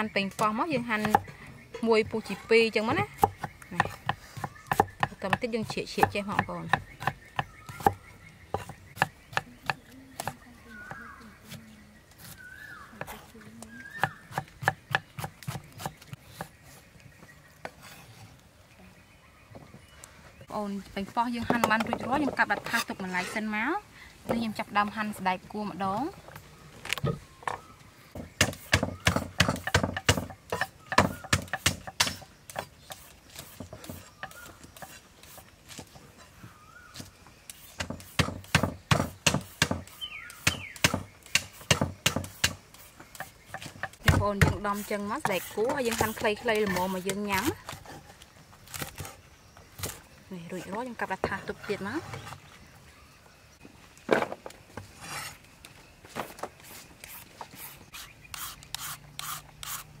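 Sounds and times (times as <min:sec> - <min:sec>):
cleaver chopping on wooden block: 0:00.4 - 0:01.3, 0:03.1 - 0:11.0, 0:13.9 - 0:16.6, 0:28.2 - 0:35.0, 0:37.6 - 0:42.6.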